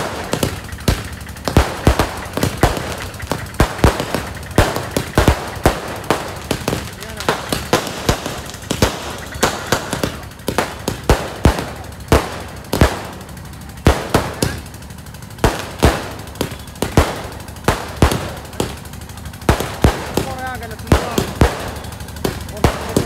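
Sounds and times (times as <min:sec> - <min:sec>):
fireworks bangs: 0:00.0 - 0:23.0.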